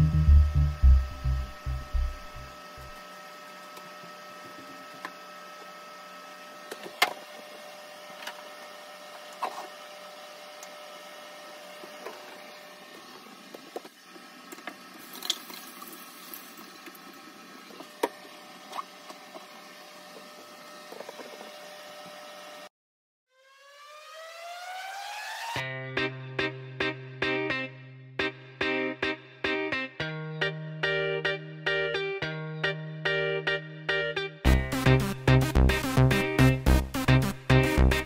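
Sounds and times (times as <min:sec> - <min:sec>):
room hum: 0:00.0 - 0:22.6.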